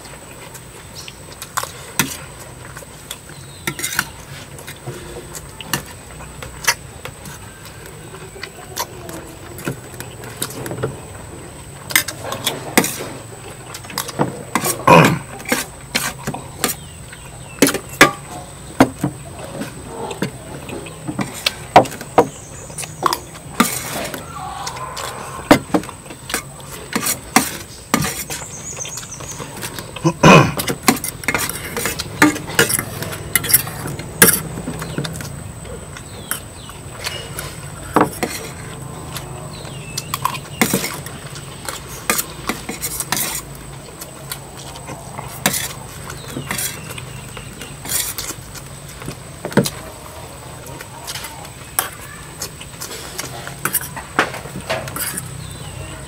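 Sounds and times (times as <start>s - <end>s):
utensil clinking against a dish: 50.6s - 56.0s.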